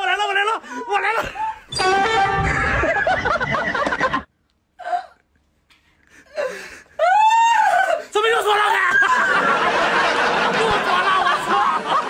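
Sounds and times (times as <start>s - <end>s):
woman crying and wailing: 6.3s - 8.1s.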